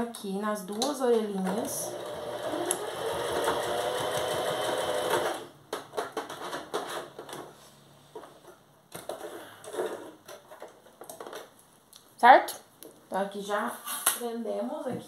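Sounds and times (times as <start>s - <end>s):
sewing machine stitching: 1.6s - 5.5s.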